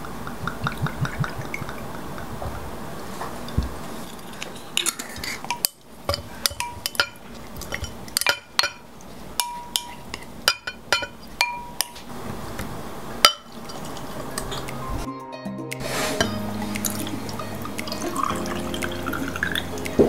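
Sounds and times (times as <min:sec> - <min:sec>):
glass clinking: 0:03.4 - 0:12.1, 0:13.2 - 0:14.8.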